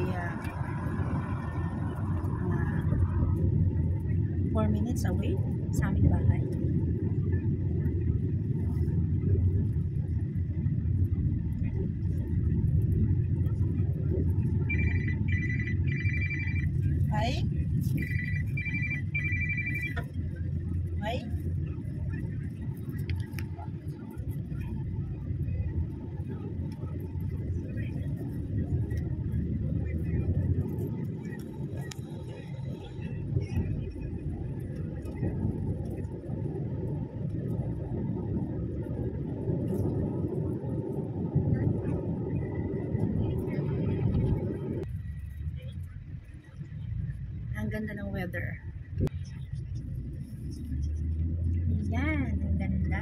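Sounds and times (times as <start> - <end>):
car cabin road and engine rumble: 0.0 - 53.0
high electronic beeps: 14.6 - 17.3, 17.9 - 20.1.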